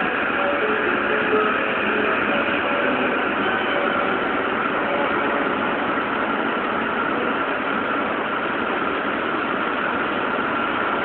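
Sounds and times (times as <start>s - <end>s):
faint steady tones: 0.0s - 8.6s
train mechanical hum and hiss: 0.0s - 11.0s.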